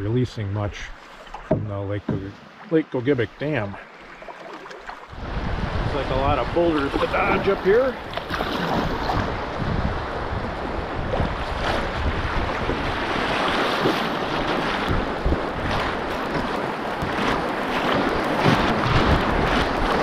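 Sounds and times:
wind buffeting microphone: 0:05.1 - 0:20.0.

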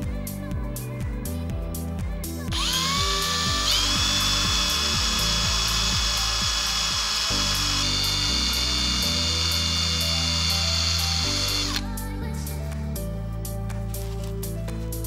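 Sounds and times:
electric drill whining: 0:02.5 - 0:11.8.

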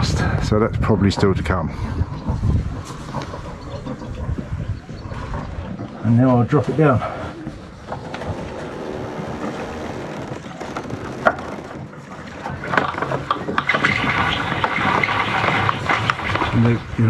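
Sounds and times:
sail rustling: 0:01.2 - 0:17.0
rigging knocks: 0:07.6 - 0:16.8
rope running out: 0:07.6 - 0:16.8.

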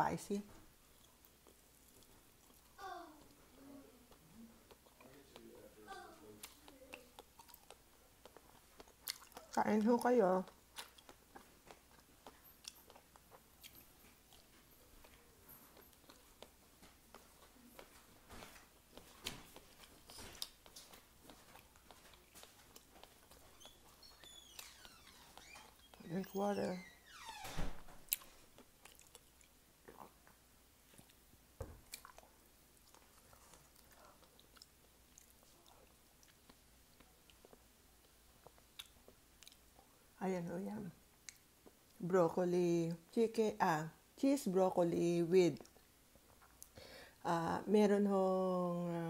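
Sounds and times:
person chewing: 0:00.9 - 0:03.4, 0:04.1 - 0:09.6, 0:10.5 - 0:26.0, 0:28.1 - 0:40.0
mouth clicks and smacks: 0:06.4 - 0:09.6.

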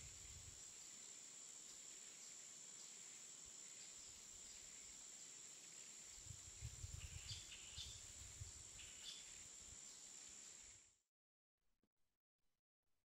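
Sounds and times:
wind rumble on microphone: 0:00.0 - 0:00.6, 0:06.2 - 0:09.0.

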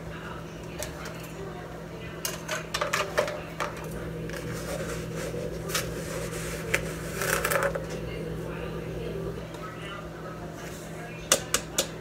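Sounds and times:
steady low hum: 0:03.2 - 0:12.0.

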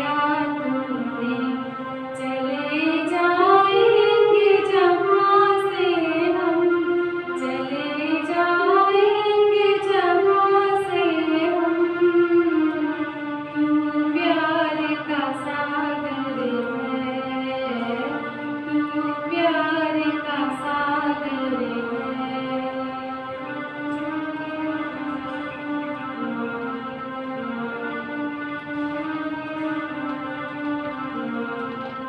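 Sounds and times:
woman singing slow melody: 0:07.4 - 0:12.7.

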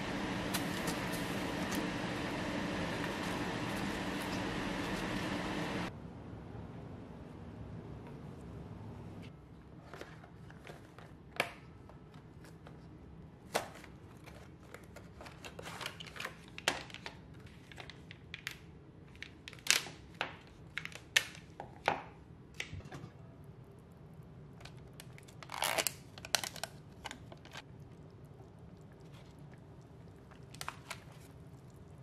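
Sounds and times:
plastic pouch crinkling: 0:24.8 - 0:27.6.

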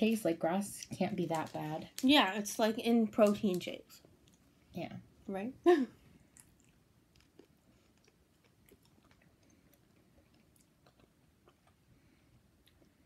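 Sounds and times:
chewing with mouth clicks: 0:06.2 - 0:13.0.

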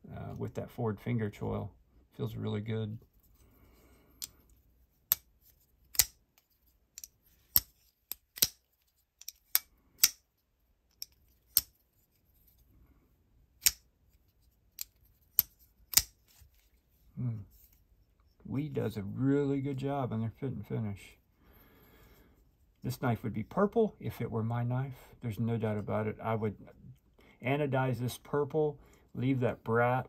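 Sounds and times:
folding knife clicking: 0:05.9 - 0:06.2, 0:07.0 - 0:08.6, 0:09.2 - 0:10.2, 0:10.9 - 0:11.7, 0:13.6 - 0:13.9, 0:14.8 - 0:16.2.

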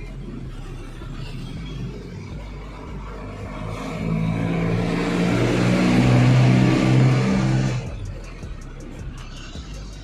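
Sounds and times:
vehicle engine revving: 0:00.0 - 0:10.0.

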